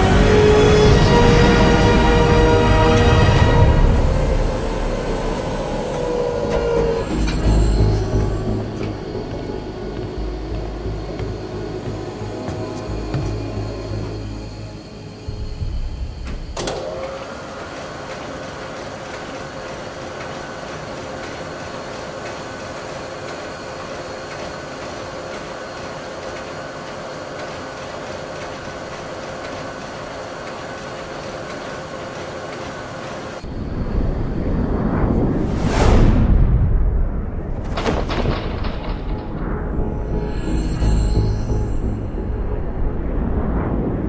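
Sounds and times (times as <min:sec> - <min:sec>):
mechanical hum with held tone: 0:00.0 - 0:35.4
low rumble: 0:33.4 - 0:44.0
rising whoosh: 0:34.3 - 0:37.6.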